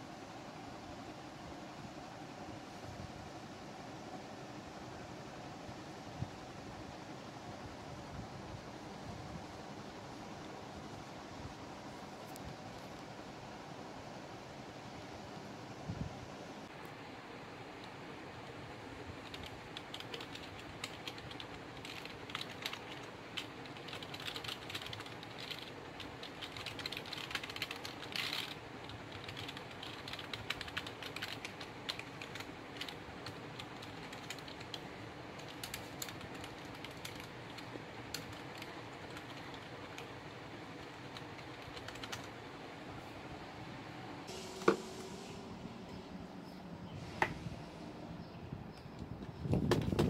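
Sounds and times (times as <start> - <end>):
steady background hiss: 0.0 - 50.0
mechanical keyboard keys clicking: 19.2 - 40.1, 40.8 - 42.4.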